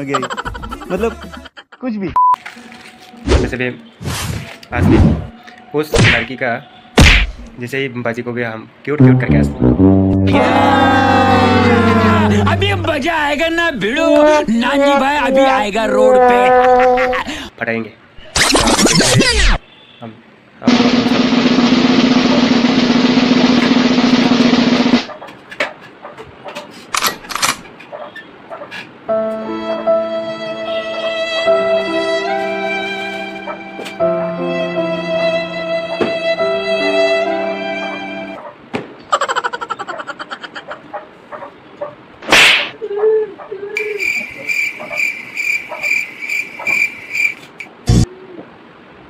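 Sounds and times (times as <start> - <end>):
drum music with drum roll: 20.7 - 25.1.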